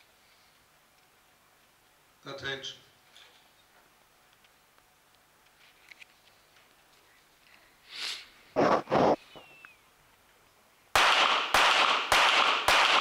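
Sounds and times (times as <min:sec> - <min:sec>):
breathy hiss: 0:07.5 - 0:08.6
pistol shot: 0:11.0 - 0:13.0.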